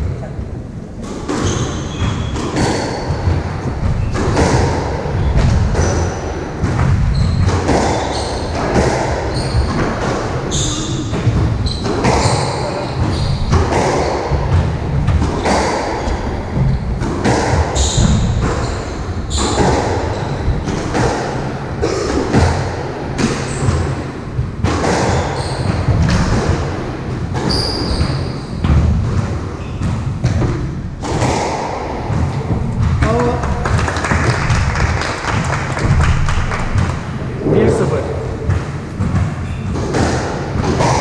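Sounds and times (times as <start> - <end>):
squash ball strikes: 1.0 - 33.4, 35.8 - 41.0
shoes squeaking on wooden floor: 6.8 - 17.0, 27.4 - 28.7.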